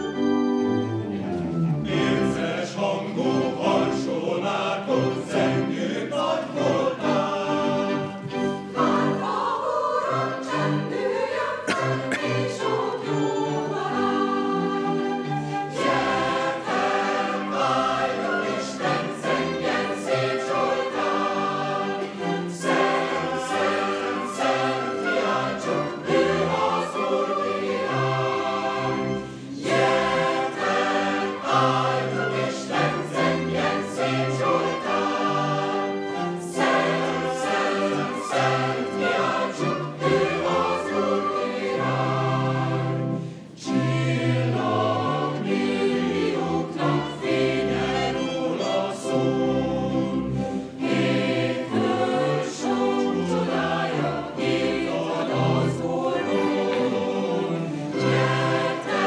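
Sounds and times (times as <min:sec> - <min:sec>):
choir singing: 0:00.0 - 0:59.0.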